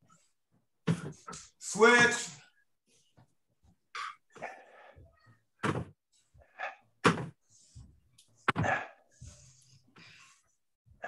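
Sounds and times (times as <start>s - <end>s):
hard breathing: 6.1s - 11.0s.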